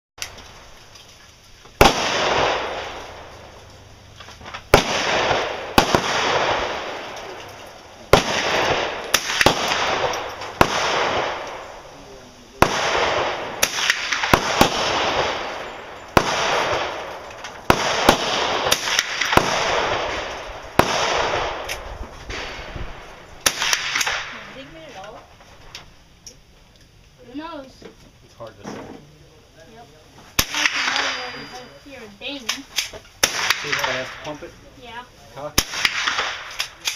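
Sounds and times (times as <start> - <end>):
rifle shots echoing: 1.8 - 24.9, 30.4 - 34.6, 35.4 - 36.9
rifle action clicks: 35.8 - 36.9.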